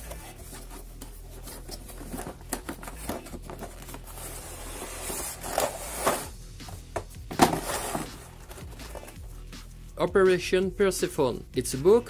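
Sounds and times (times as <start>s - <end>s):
cardboard box scraping and rustling: 0.3s - 6.3s, 7.4s - 9.2s.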